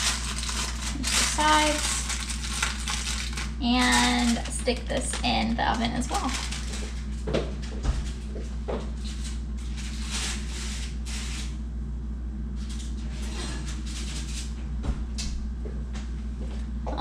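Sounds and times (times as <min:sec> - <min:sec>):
foil rustling: 0:00.0 - 0:11.6, 0:12.6 - 0:14.6
steady low hum: 0:00.0 - 0:17.0.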